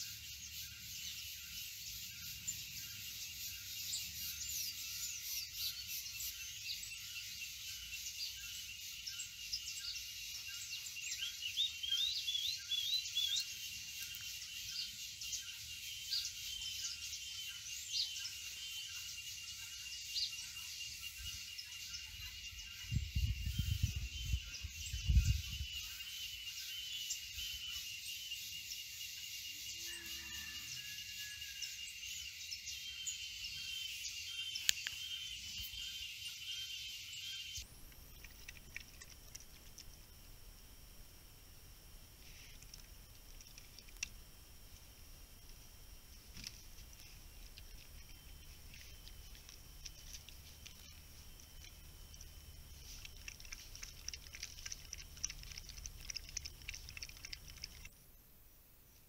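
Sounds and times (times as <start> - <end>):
small birds chirping: 0.0 - 29.9, 31.6 - 40.3, 42.2 - 57.9
insect drone with pulsing trill: 0.0 - 59.0.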